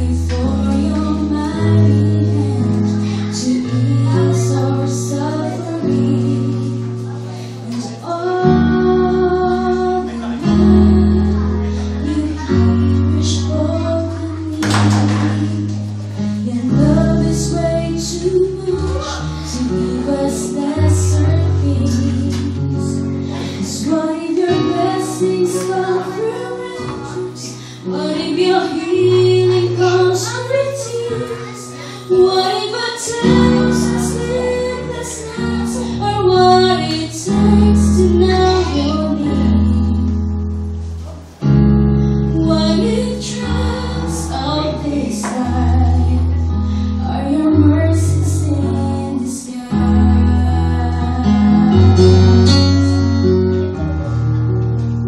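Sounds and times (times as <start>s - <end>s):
woman singing into a microphone: 0.0s - 40.4s, 42.2s - 53.0s
keyboard chords: 0.0s - 55.0s
strummed acoustic guitar: 49.2s - 55.0s.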